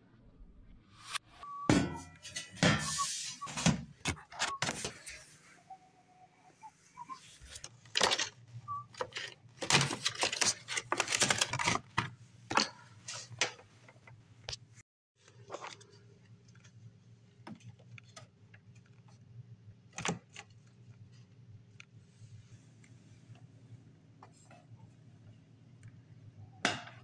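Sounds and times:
plastic and metal parts rattling: 0:07.5 - 0:13.6.

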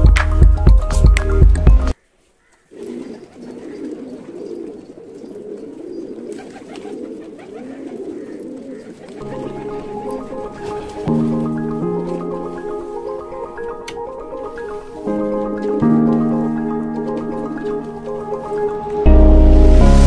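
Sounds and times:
background music: 0:00.0 - 0:02.0, 0:09.2 - 0:20.0
pigeons cooing: 0:02.4 - 0:19.1.

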